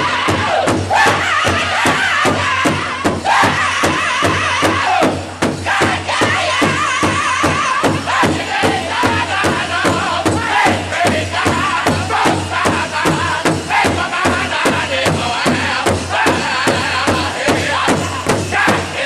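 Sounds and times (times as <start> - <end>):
steady big drum beat: 0.0 - 19.0
voices singing high wavering chant: 0.0 - 19.0.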